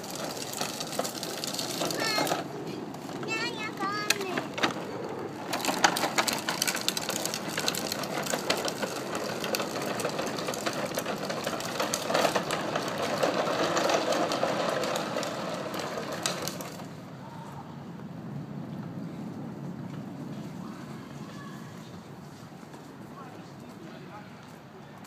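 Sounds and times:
plastic trike wheels rattling: 0:00.0 - 0:17.2.

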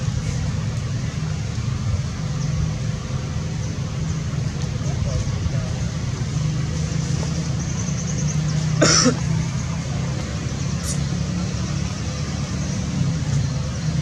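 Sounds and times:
steady low rumble: 0:00.0 - 0:08.6
person coughing: 0:08.8 - 0:09.2.

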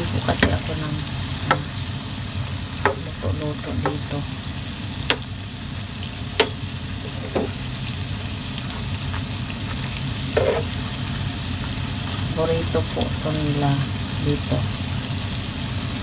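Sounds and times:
oil sizzling deep-frying: 0:00.0 - 0:16.0
spatula tapping pot: 0:00.4 - 0:00.8, 0:01.4 - 0:01.8, 0:02.8 - 0:04.2, 0:05.1 - 0:05.4, 0:06.4 - 0:07.6.

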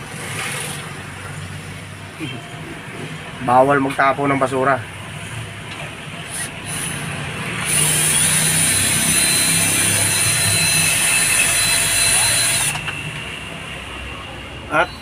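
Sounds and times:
cordless drill whining: 0:06.3 - 0:12.9.

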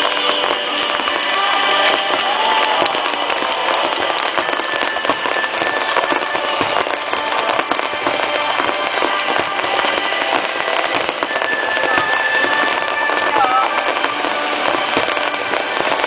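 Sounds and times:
fireworks bangs and crackling: 0:00.0 - 0:16.0.

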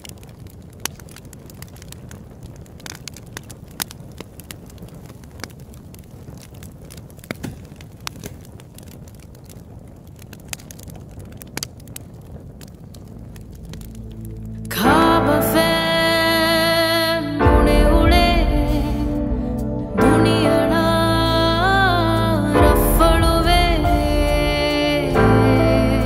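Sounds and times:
crackles and pops: 0:00.0 - 0:26.0
low steady rumble: 0:11.0 - 0:26.0.

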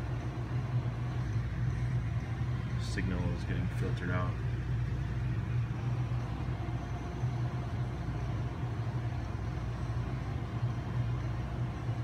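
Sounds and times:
low equipment hum: 0:00.0 - 0:12.0.

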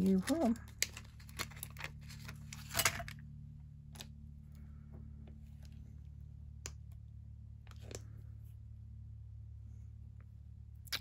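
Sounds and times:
plastic rustle: 0:00.0 - 0:03.2
low steady hum: 0:00.0 - 0:11.0.

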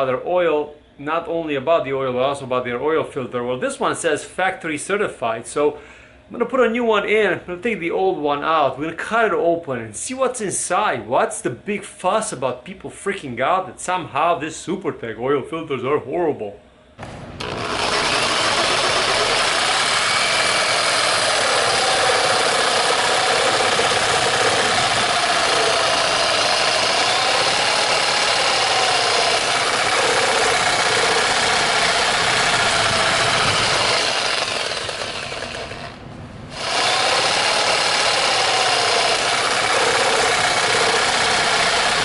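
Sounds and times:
electric jigsaw cutting steel: 0:17.4 - 0:42.0.

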